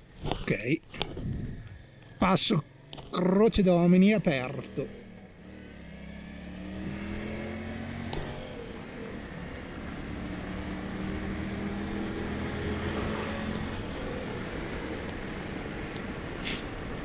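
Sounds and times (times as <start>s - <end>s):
rush of riding wind: 0.0s - 2.4s, 5.0s - 17.0s
motorcycle engine running: 0.0s - 17.0s
short hiss: 16.4s - 16.7s.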